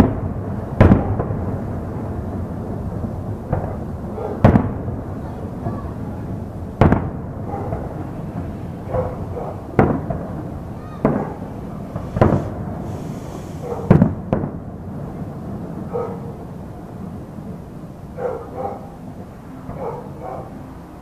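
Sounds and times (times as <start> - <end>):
fireworks shells bursting: 11.0 - 14.6.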